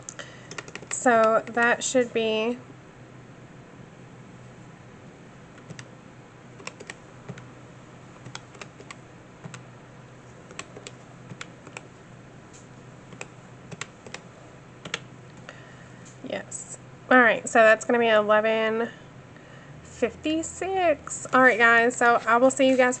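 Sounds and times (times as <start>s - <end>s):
calculator keys clicking: 0.5s - 1.6s, 5.6s - 5.9s, 6.6s - 7.5s, 8.2s - 9.6s, 10.5s - 11.9s, 13.1s - 14.2s, 14.8s - 15.5s.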